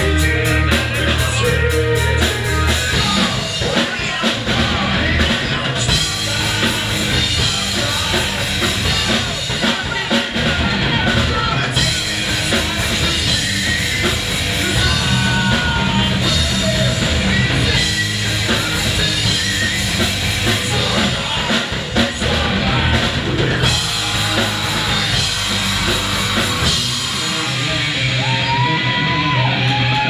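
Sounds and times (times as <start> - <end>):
distorted electric guitar: 0.0 - 30.0
person singing into a microphone: 0.0 - 30.0
pounding drum kit: 0.0 - 30.0.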